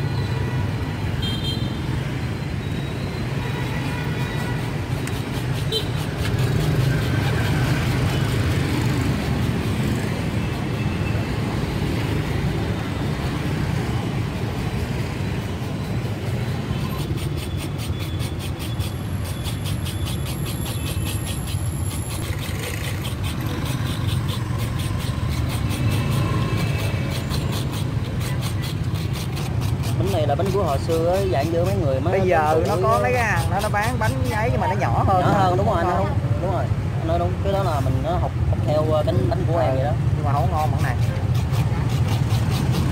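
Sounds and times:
street traffic rumble: 0.0 - 42.9
scraper shredding coconut: 16.9 - 34.6, 40.5 - 42.9.

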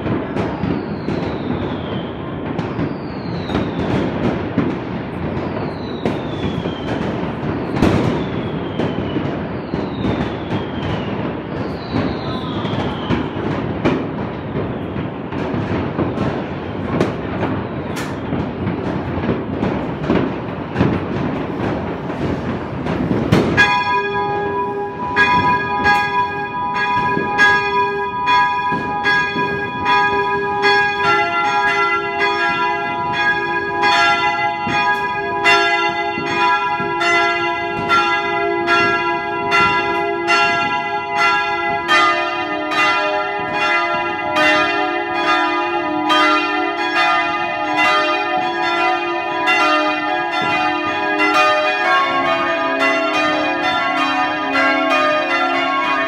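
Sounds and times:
church bells ringing: 19.8 - 56.0
deep bell ringing: 23.6 - 56.0.

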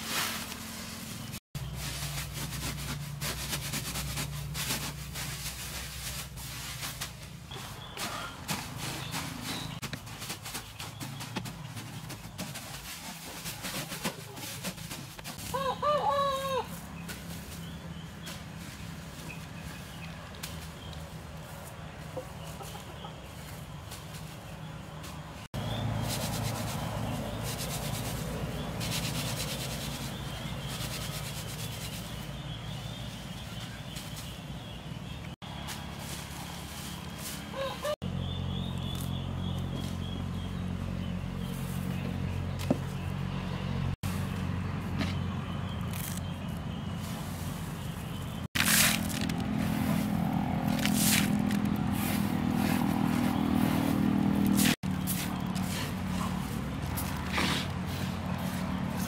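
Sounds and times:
rice grains rustling and hissing: 0.0 - 9.2, 47.0 - 59.0
rice stalks rustling and scraping: 0.0 - 15.6, 16.7 - 34.4, 35.5 - 38.0, 45.8 - 59.0.

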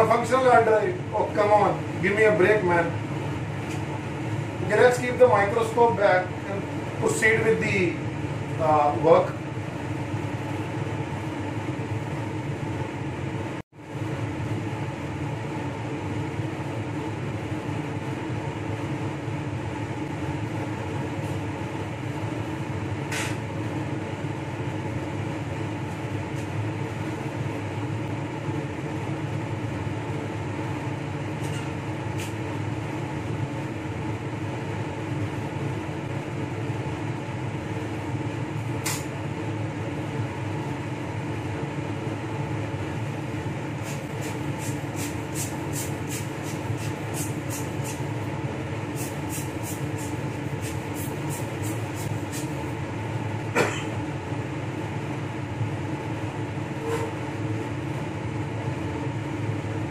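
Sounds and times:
ventilation blower drone: 0.0 - 59.9.

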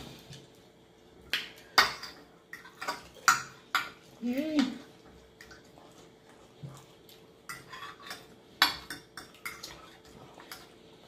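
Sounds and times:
forks clinking on glass plates: 7.5 - 9.8.

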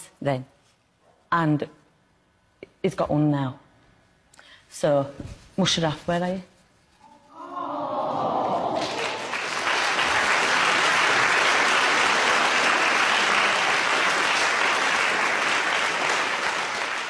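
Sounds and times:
voices: 7.0 - 9.3
audience applauding: 7.4 - 17.0.

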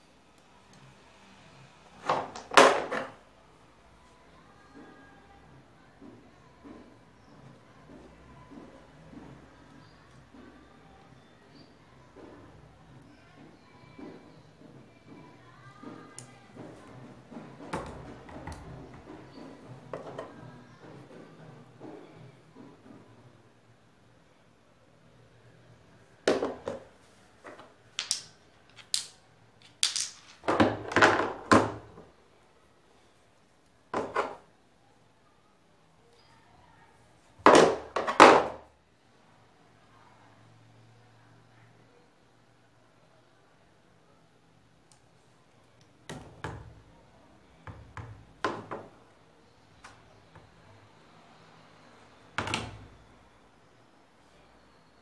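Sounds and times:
hard objects knocking on surface: 47.7 - 49.0.

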